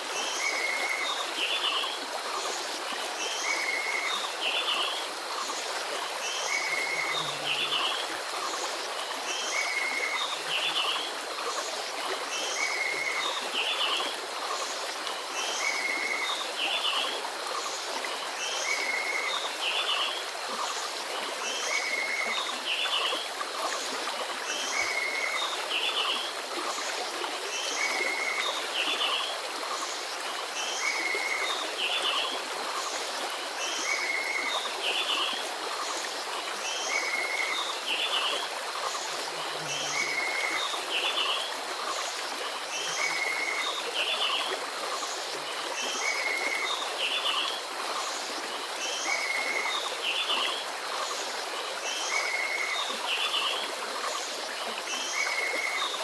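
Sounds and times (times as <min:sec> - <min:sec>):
stream rippling over rocks: 0:00.0 - 0:56.0.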